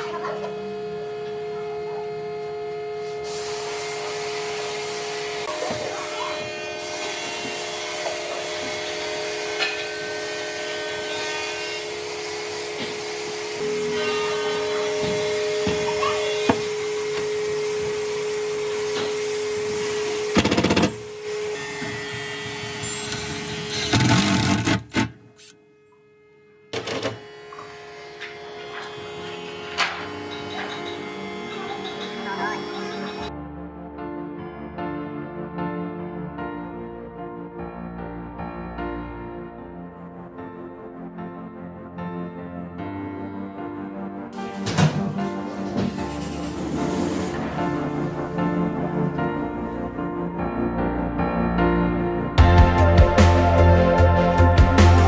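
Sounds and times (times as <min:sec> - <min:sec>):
power tool motor whine: 0:00.4 - 0:33.3, 0:44.4 - 0:49.8.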